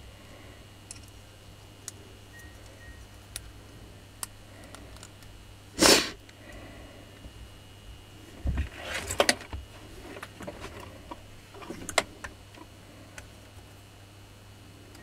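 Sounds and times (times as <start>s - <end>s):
clicks and knocks of parts handled: 0.9s - 2.0s, 8.5s - 13.8s.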